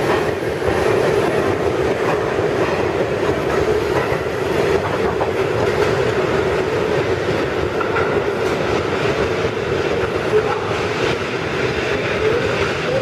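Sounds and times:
subway train running on rails: 0:00.0 - 0:13.0.

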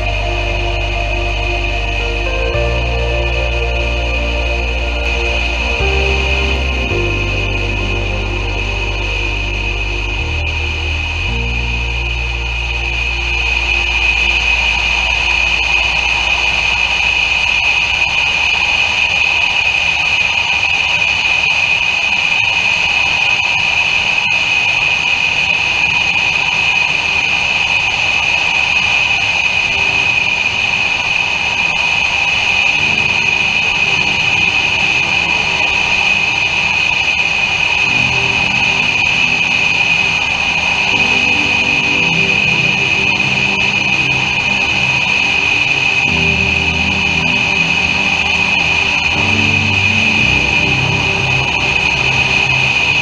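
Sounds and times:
high-pitched tone: 0:00.0 - 0:18.8, 0:29.7 - 0:53.0
aircraft engines and propellers droning: 0:00.0 - 0:53.0.

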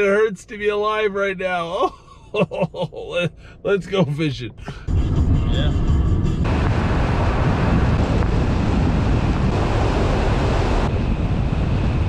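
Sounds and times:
car road and wind noise: 0:02.3 - 0:12.0.

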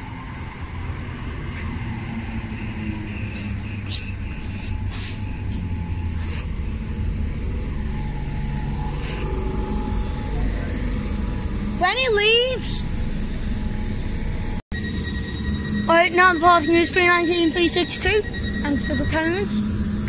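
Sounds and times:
train low rumble: 0:00.0 - 0:20.0
sharp hisses of air: 0:03.4 - 0:05.3.

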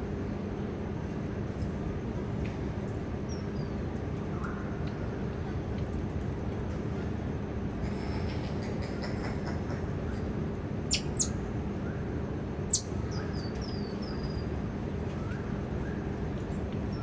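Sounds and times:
low background hum: 0:00.0 - 0:17.0
monkeys chirping: 0:10.9 - 0:11.3.

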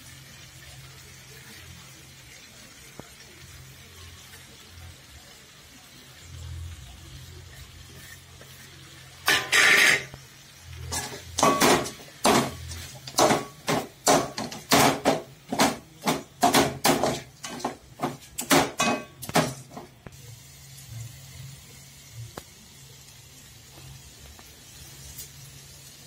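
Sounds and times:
metal ladle scraping pan: 0:09.2 - 0:10.2, 0:10.9 - 0:13.6.

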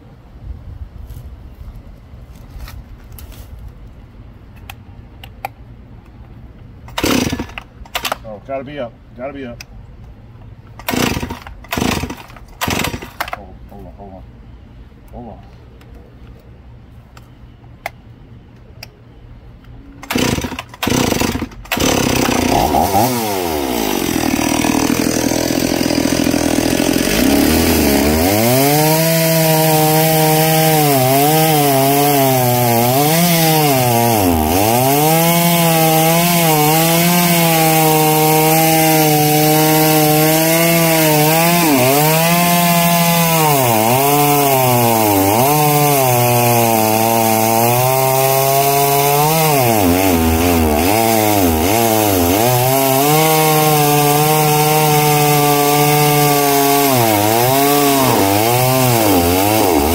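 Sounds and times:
chainsaw revving and cutting wood: 0:06.9 - 0:08.2, 0:10.8 - 0:13.3, 0:20.0 - 0:59.9.

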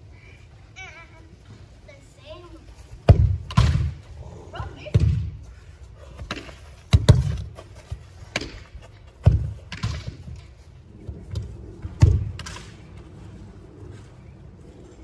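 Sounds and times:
ball landing and bouncing: 0:03.1 - 0:04.0, 0:06.2 - 0:07.6
soccer ball kicked hard: 0:03.1 - 0:04.0, 0:04.9 - 0:05.4, 0:06.3 - 0:07.6, 0:09.2 - 0:10.2, 0:11.3 - 0:12.4.

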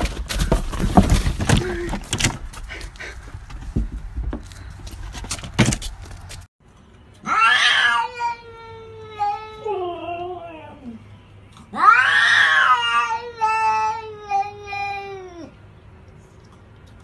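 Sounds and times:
knocks and rustles: 0:00.0 - 0:06.5
cat yowling: 0:07.3 - 0:11.0, 0:11.7 - 0:15.5.

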